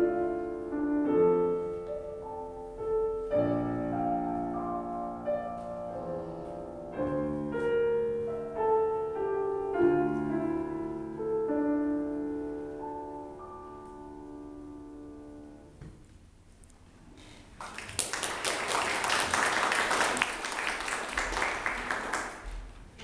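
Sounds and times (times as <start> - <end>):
grand piano notes ringing: 0.0 - 15.8
audience applause: 17.5 - 22.7.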